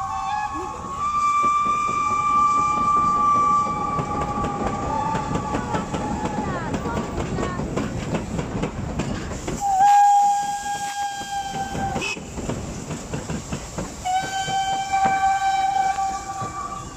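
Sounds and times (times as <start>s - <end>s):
steam whistle blast: 0.0s - 6.2s, 9.6s - 12.3s, 14.0s - 16.9s
steam locomotives passing: 0.0s - 16.9s.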